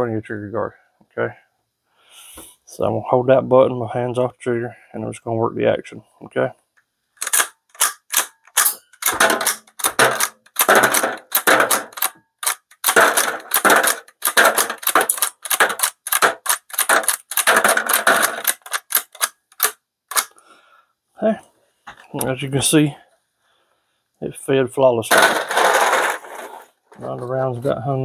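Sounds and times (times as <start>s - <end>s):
rifle slide racking clacks: 7.2s - 20.3s.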